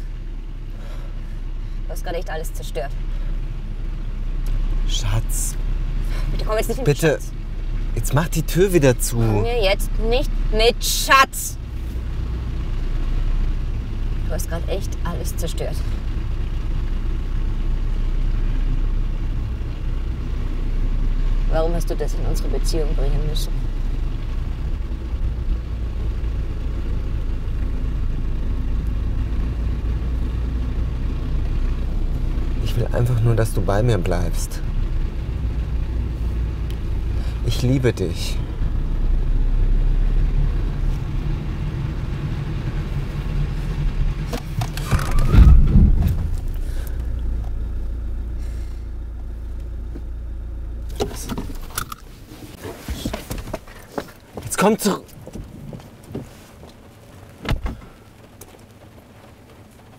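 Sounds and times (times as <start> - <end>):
car cabin low rumble: 0.0 - 59.9
heavy low thump: 44.2 - 47.5.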